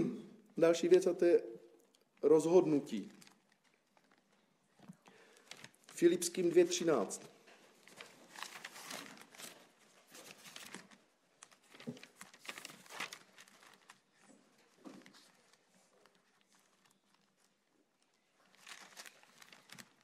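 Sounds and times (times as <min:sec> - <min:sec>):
pages rustling and flipping: 0:03.0 - 0:06.0, 0:06.7 - 0:20.0.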